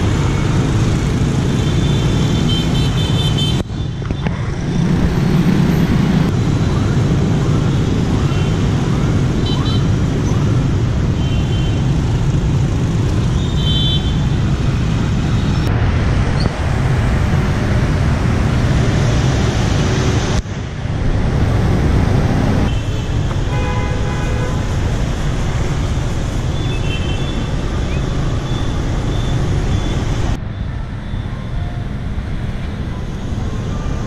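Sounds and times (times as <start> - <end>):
city street traffic: 0.0 - 34.0.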